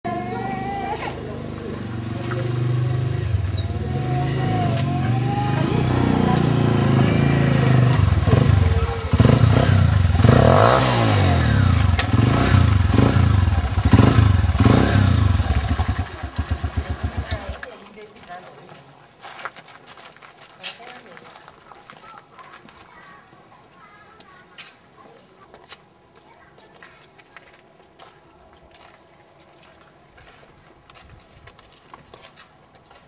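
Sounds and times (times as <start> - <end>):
motorcycle engine revving: 0.2 - 17.7.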